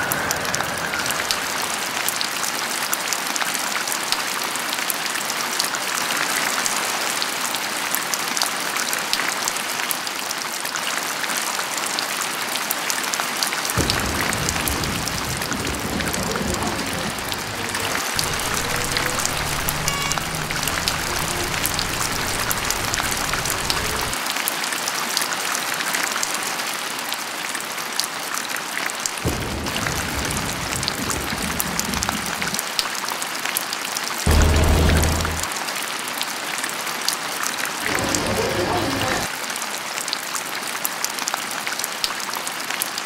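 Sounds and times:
steady rainfall: 0:00.0 - 0:43.0
low rumble: 0:13.8 - 0:24.2, 0:34.3 - 0:35.5.

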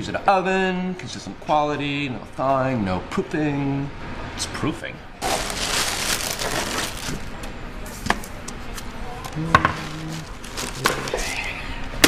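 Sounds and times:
packaging rustling: 0:05.2 - 0:07.4, 0:09.7 - 0:11.3.

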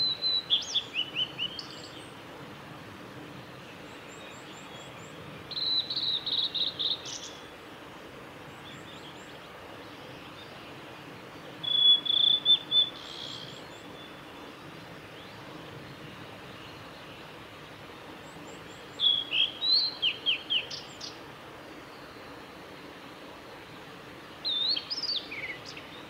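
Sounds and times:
flycatcher singing: 0:00.0 - 0:02.2, 0:04.0 - 0:07.5, 0:11.6 - 0:14.4, 0:18.2 - 0:21.2, 0:24.4 - 0:26.0.

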